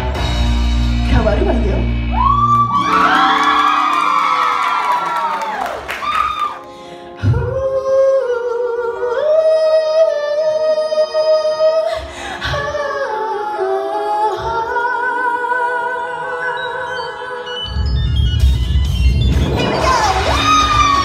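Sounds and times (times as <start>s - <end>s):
backing music: 0.0s - 21.0s
woman singing into microphone: 7.2s - 17.9s.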